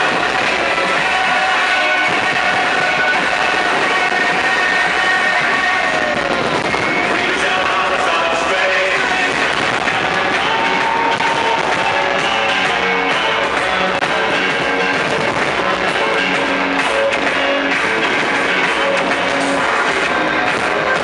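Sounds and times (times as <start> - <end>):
loud music with short held notes: 0.0 - 21.0.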